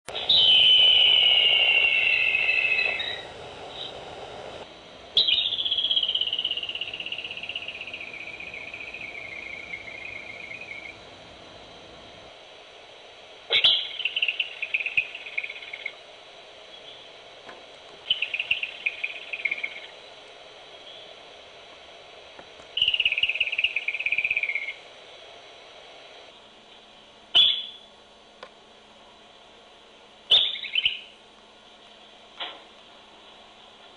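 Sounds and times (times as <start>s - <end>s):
groundhog whistling: 0.1s - 4.0s, 5.2s - 11.0s, 13.5s - 16.0s, 18.0s - 19.9s, 22.8s - 24.8s, 27.3s - 27.9s, 30.3s - 31.2s.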